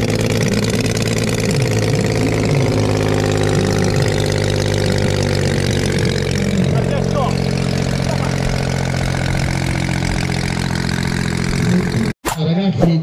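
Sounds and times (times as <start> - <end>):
model plane engine idling: 0.0 - 12.2.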